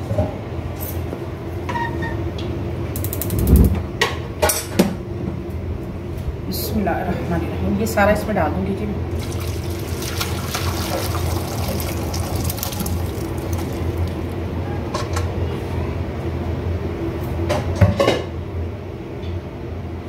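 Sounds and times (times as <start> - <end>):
liquid pouring and splashing: 9.1 - 14.4.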